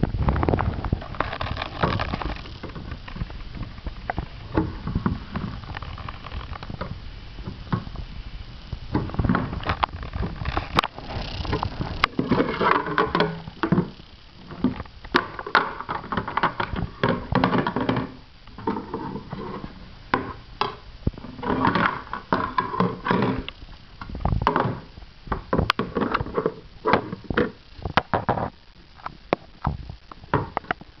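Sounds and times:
plastic toys clattering: 0:00.3 - 0:07.0, 0:08.9 - 0:29.1.

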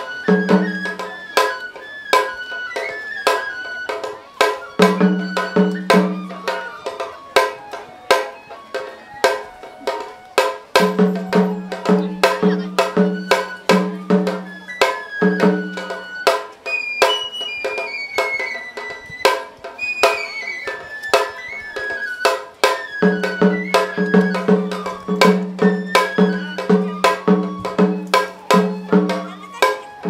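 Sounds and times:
bamboo flute melody: 0:00.0 - 0:30.0
low drum beat: 0:10.7 - 0:14.6, 0:23.0 - 0:29.4.

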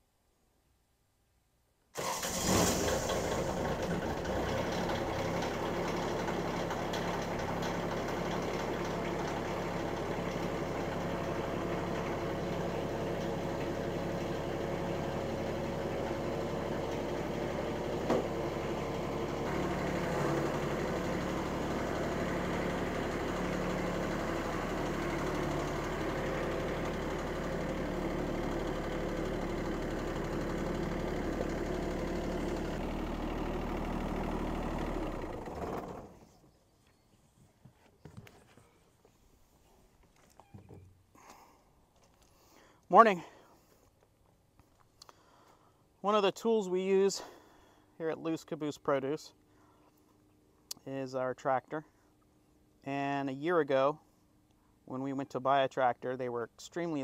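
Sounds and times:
diesel tractor engine idling: 0:02.0 - 0:36.3.

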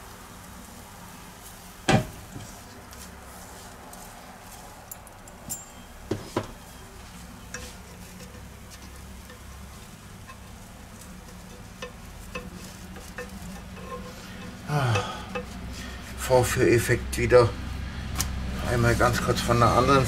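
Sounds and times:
batter sizzling in a frying pan: 0:06.5 - 0:16.1
spoon clinking against metal pot: 0:07.4 - 0:15.7.

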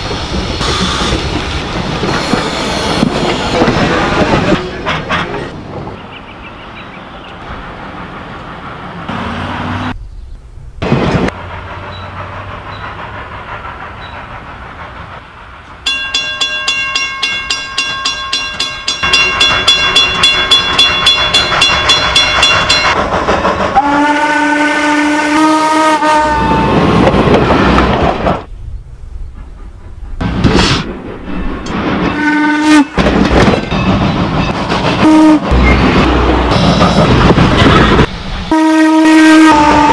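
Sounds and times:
engine rush: 0:10.8 - 0:15.5
locomotive exhaust beat: 0:10.8 - 0:28.4, 0:29.2 - 0:39.9
steam whistle blast: 0:23.8 - 0:26.8, 0:38.5 - 0:39.9.

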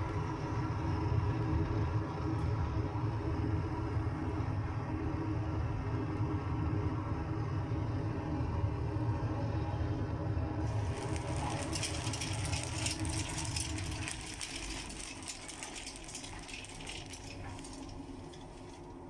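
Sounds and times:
burner flame and fan roar: 0:00.0 - 0:19.0
dense crackling rattle: 0:10.7 - 0:19.0.

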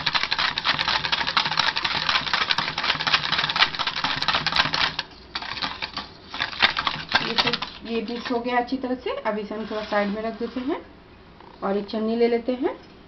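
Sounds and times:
whisk clicking against metal bowl: 0:00.0 - 0:08.5.

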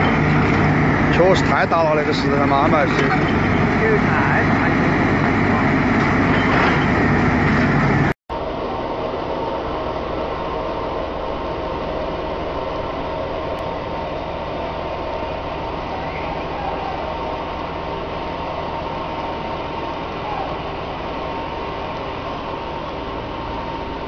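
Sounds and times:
excavator diesel engine: 0:00.0 - 0:24.0
machinery hum: 0:00.0 - 0:24.0
faint high whine: 0:07.9 - 0:24.0.

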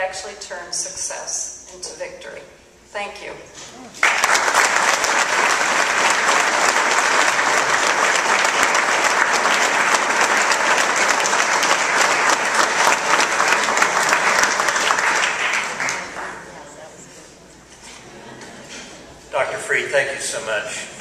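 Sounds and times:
large audience applauding: 0:04.0 - 0:16.5.

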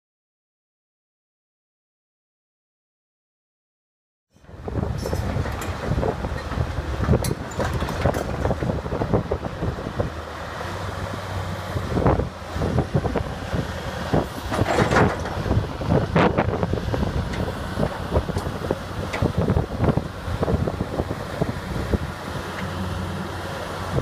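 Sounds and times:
diesel engine running: 0:04.4 - 0:24.0
metal track chain clanking: 0:04.9 - 0:08.8.

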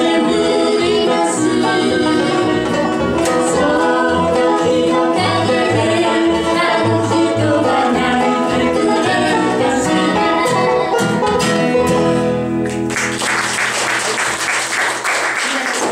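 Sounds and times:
woman singing: 0:00.0 - 0:02.7, 0:03.3 - 0:10.8
bluegrass band playing: 0:00.0 - 0:15.0
audience applause: 0:12.6 - 0:15.9.

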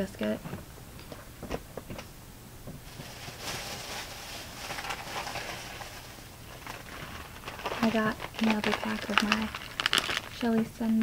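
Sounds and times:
plastic snack packaging crinkling: 0:02.8 - 0:11.0.

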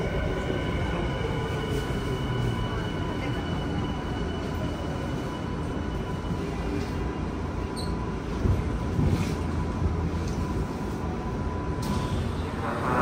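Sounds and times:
train low rumble: 0:00.0 - 0:13.0.

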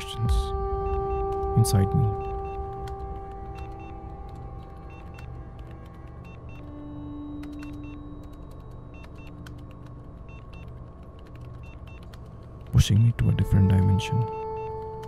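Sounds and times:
low pulsing drone: 0:00.0 - 0:07.5
long held tones: 0:00.0 - 0:09.5
sharp clicks and ticks: 0:00.2 - 0:15.0.

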